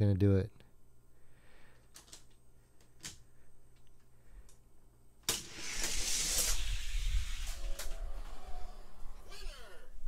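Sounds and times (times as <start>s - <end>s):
toy cars rolling down plastic track: 5.3s - 8.0s.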